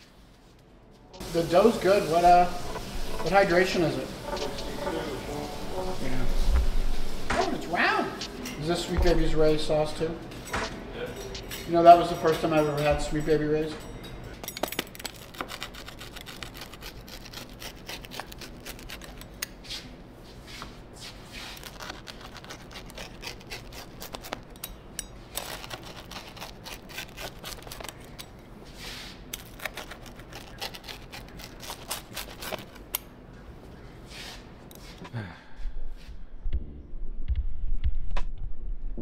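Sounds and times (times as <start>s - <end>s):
pizza cutter crunching through crust: 14.8s - 19.9s, 21.1s - 33.1s
cutter scraping cutting board: 15.3s - 19.4s, 21.5s - 24.5s.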